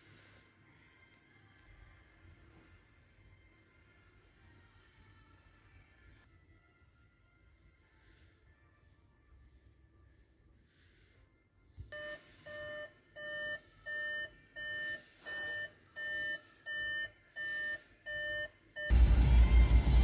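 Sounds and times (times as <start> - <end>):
car warning chime beeping: 11.9 - 19.0
loud music: 18.9 - 20.0.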